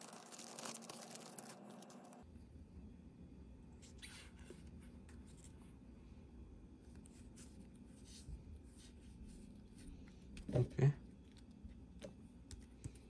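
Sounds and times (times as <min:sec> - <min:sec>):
rustling of card packs: 0:00.0 - 0:02.2.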